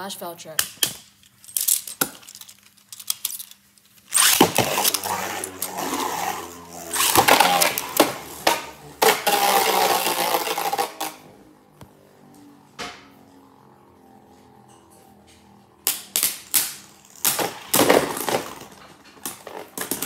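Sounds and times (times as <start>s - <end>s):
spinning tops scraping on plastic: 1.2s - 11.4s, 15.9s - 20.0s.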